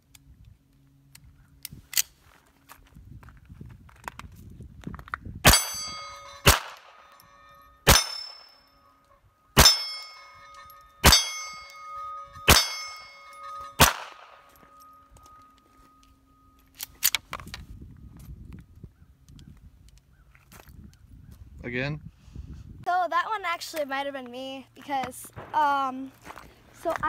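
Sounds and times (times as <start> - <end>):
steel plate target ringing: 5.4 - 16.8
pistol shots: 6.4 - 7.0, 7.9 - 8.4, 9.6 - 10.0, 12.5 - 12.9, 13.8 - 14.4.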